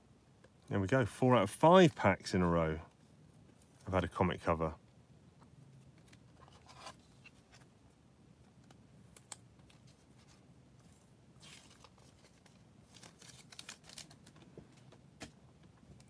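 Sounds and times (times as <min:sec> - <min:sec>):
cards sliding in plastic sleeves: 0:09.2 - 0:14.4.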